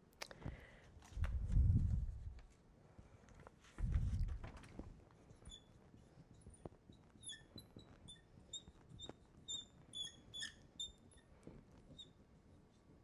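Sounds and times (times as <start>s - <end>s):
marker squeaking on glass: 5.3s - 12.8s.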